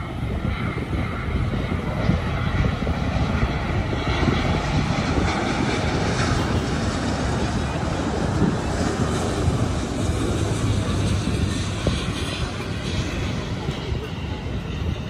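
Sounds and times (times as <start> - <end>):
jet aircraft approaching: 0.0 - 15.0.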